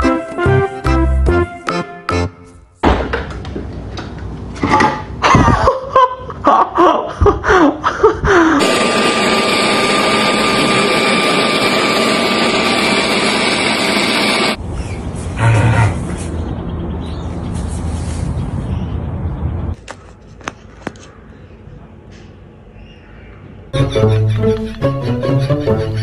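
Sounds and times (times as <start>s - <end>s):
leaf blower running: 8.6s - 14.6s.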